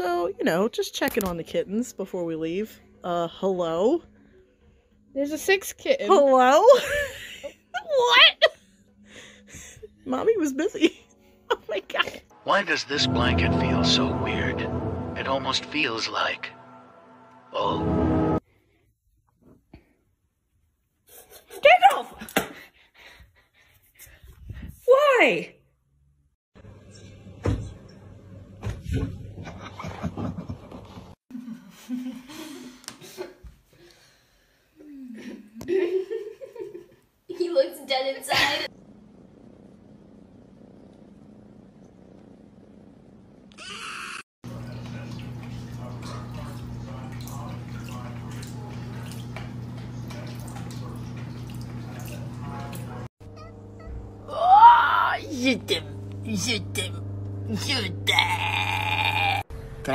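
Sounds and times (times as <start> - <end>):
cat paddling in water: 44.5 - 53.1
water dripping and splashing: 44.5 - 53.1
steady low hum: 55.2 - 58.4.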